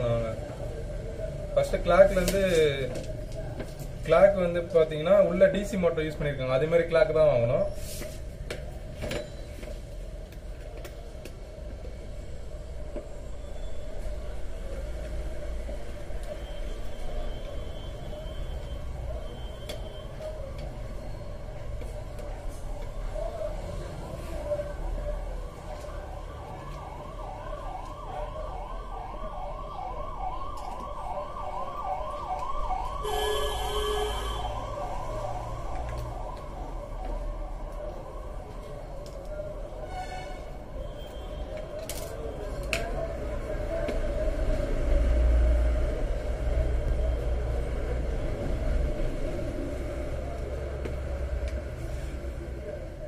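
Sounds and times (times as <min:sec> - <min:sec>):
siren yelping: 0:24.4 - 0:38.9
buzzing horn tone: 0:33.0 - 0:34.6.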